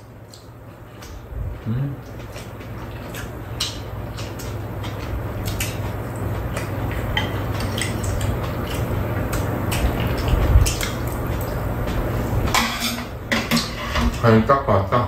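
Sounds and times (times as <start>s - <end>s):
steady low hum: 0.0s - 15.0s
chewing: 0.2s - 12.1s
chopsticks clicking on dishes: 6.5s - 11.6s.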